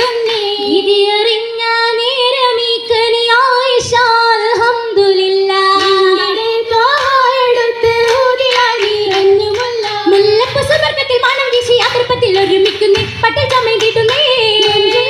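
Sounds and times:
rhythmic hand claps: 0.0 - 1.0, 5.4 - 15.0
girls singing through pa: 0.0 - 15.0.

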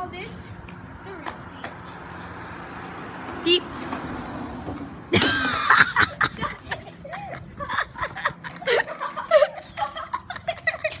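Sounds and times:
person giggling and laughing: 5.1 - 11.0.

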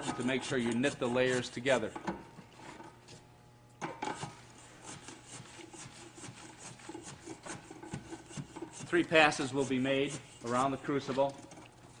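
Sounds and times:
steel tool scraping granular mix: 0.0 - 1.9, 4.2 - 11.3.

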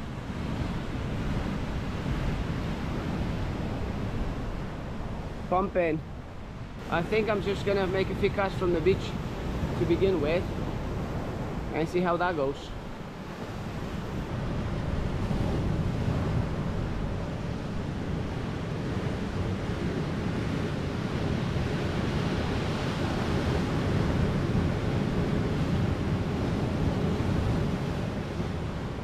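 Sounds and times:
wind buffeting microphone: 0.0 - 29.0
surf washing up pebble beach: 6.8 - 16.9.

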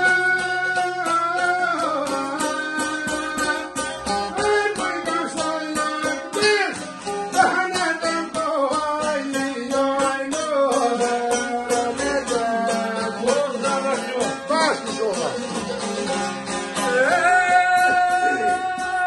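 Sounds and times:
man singing: 0.0 - 15.6, 16.7 - 19.0
lutes strummed and plucked: 0.0 - 19.0.

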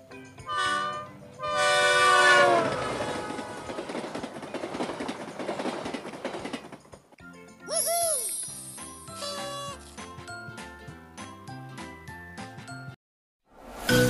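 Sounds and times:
train horn blast: 0.5 - 3.9
train rumbling on rails: 0.5 - 7.2.

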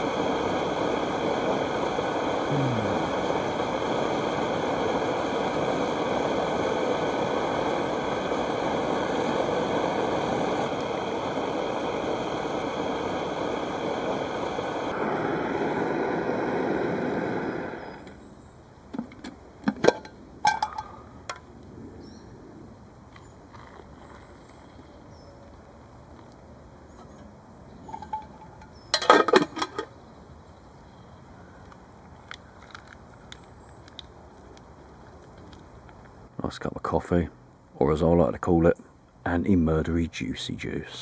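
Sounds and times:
pressure stove roaring: 0.0 - 18.2.

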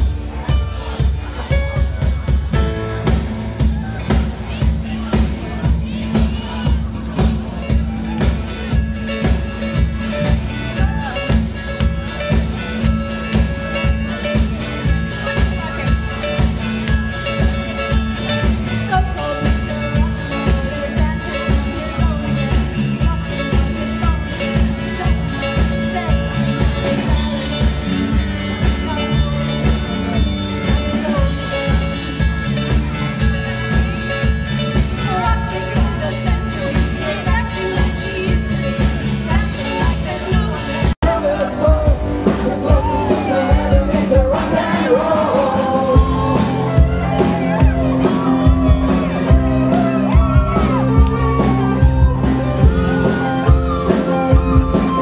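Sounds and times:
drum kit beat: 0.0 - 55.0
electric and bass guitars: 0.0 - 55.0
women singing: 39.2 - 47.6.

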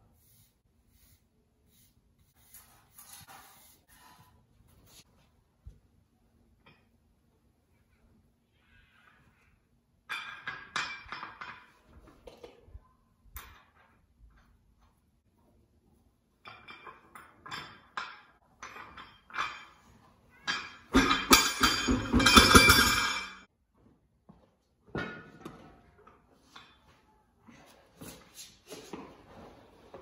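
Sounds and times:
wheel clattering onto concrete: 20.5 - 23.4.

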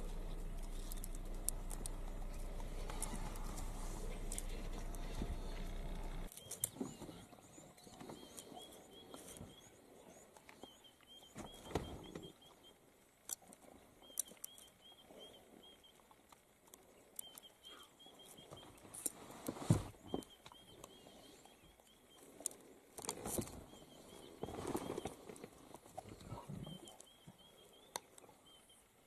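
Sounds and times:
low steady rumble: 0.0 - 6.3.

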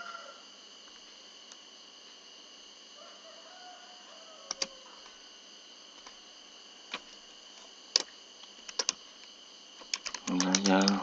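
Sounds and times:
steady background hiss: 0.0 - 11.0
computer keyboard keystrokes: 4.5 - 4.7, 8.7 - 9.0, 9.9 - 11.0.

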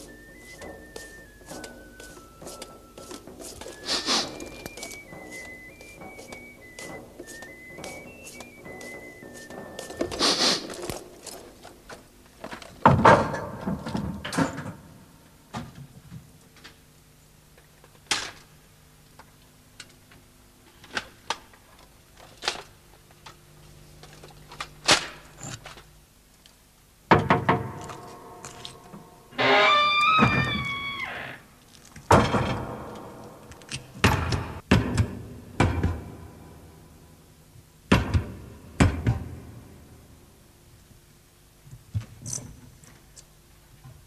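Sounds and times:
wavering pitched tone: 0.0 - 10.4.

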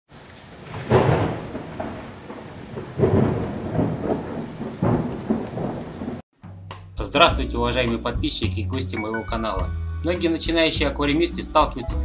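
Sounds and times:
steady rain: 0.1 - 6.2
thunder rolling: 0.1 - 6.2.

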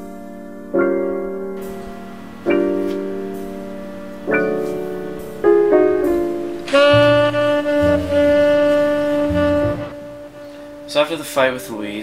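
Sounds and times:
slow piano chords: 0.0 - 12.0
sustained bowed string note: 1.6 - 11.4.

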